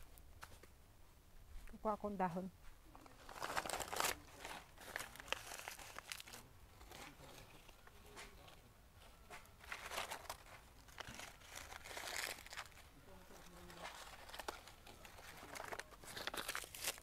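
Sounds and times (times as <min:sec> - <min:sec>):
leaves rustling and tearing: 0:03.0 - 0:07.8, 0:09.6 - 0:17.0.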